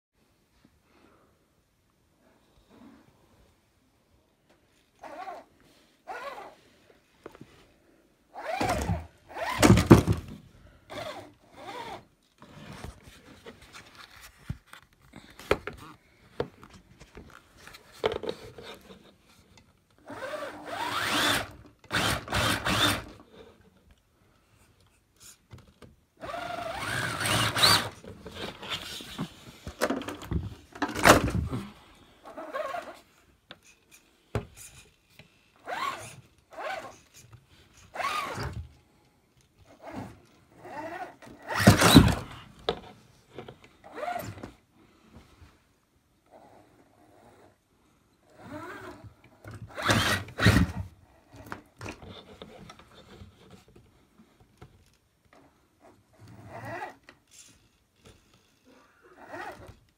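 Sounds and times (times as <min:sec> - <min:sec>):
toy truck electric motor whirring: 0:06.1 - 0:06.6, 0:08.3 - 0:09.8, 0:10.9 - 0:12.6, 0:20.0 - 0:23.3, 0:26.2 - 0:29.2, 0:35.6 - 0:37.2, 0:37.8 - 0:38.6, 0:39.7 - 0:42.3, 0:49.7 - 0:50.9.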